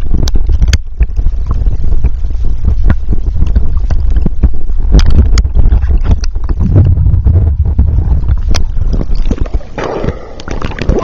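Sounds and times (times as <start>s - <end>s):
muffled underwater rumble: 0.0s - 11.0s
underwater clicks and knocks: 0.0s - 11.0s.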